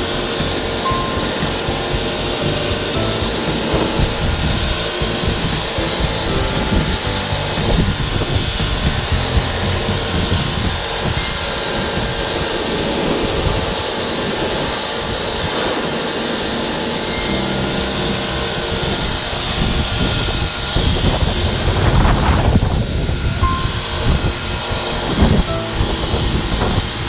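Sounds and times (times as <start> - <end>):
pressure washer jet hissing: 0.0 - 20.4.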